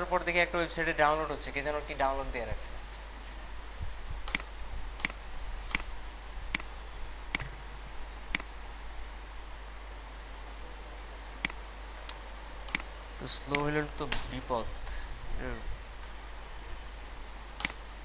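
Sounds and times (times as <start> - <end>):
low hum and hiss: 0.0 - 18.0
computer mouse clicking: 4.3 - 5.9.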